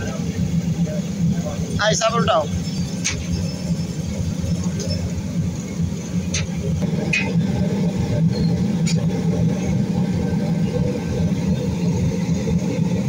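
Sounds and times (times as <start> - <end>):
motor rumbling: 0.0 - 13.0.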